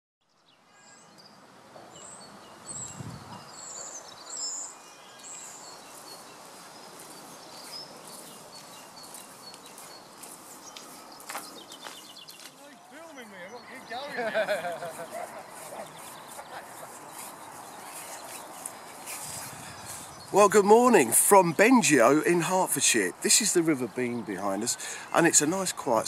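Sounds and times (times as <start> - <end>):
birds singing and chirping: 0.9 - 26.0
steady background hiss: 12.6 - 26.0.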